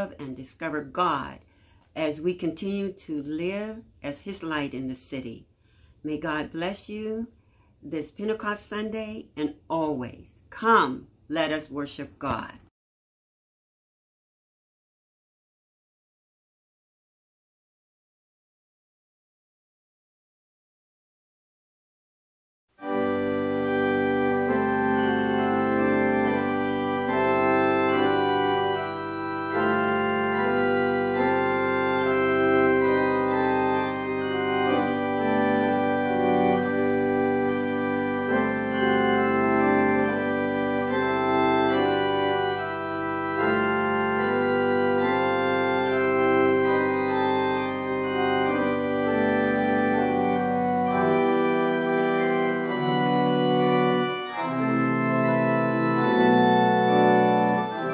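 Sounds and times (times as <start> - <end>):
church organ chords: 22.8 - 57.9.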